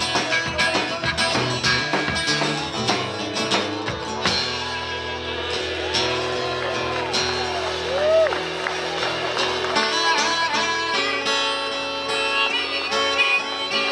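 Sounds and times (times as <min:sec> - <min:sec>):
drum kit: 0:00.0 - 0:10.1
acoustic guitar strumming: 0:00.0 - 0:13.9.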